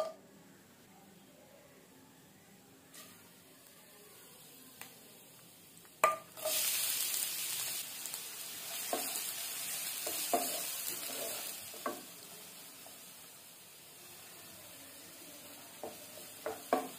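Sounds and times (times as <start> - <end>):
onions sizzling in hot oil: 4.5 - 16.9.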